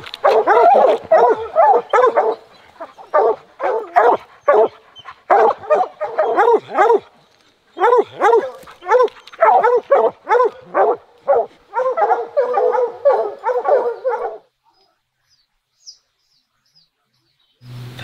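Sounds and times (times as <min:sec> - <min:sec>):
dogs barking: 0:00.0 - 0:07.2, 0:07.8 - 0:14.5.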